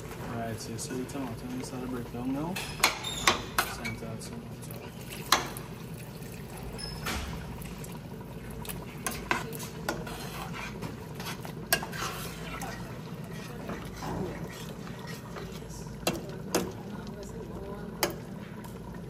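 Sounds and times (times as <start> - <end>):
water pouring into a pot: 4.5 - 19.0
metal spoon stirring and scraping: 8.7 - 17.3.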